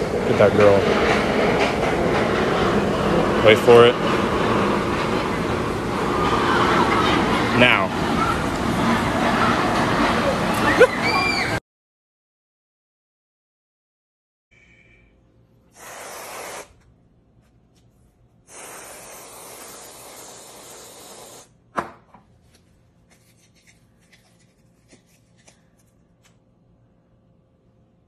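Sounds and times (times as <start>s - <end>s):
whipped cream can spraying: 15.7s - 16.8s, 18.5s - 21.5s.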